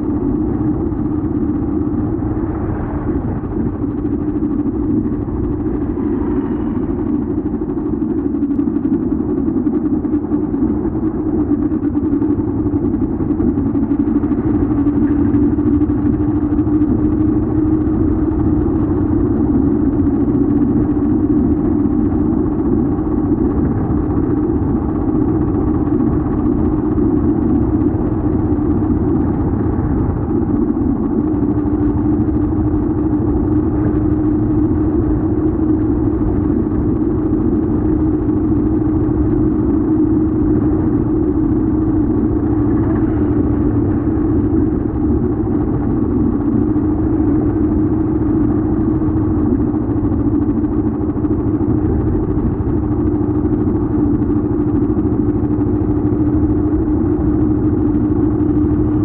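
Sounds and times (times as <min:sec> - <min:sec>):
tyre road noise: 0:00.0 - 0:09.7, 0:23.7 - 0:59.0
vehicle engine hum: 0:00.0 - 0:59.0.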